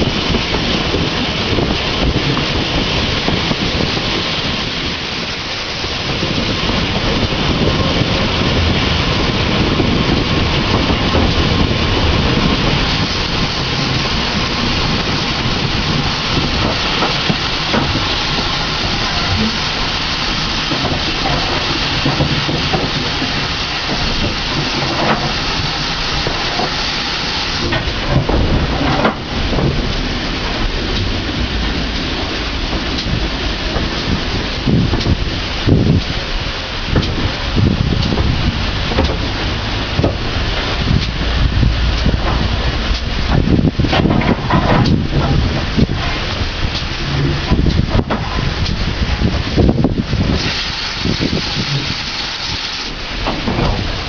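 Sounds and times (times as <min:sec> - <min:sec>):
steam locomotive running: 0:00.0 - 0:54.0
wheels on rails: 0:00.0 - 0:54.0
wind on microphone: 0:00.0 - 0:54.0.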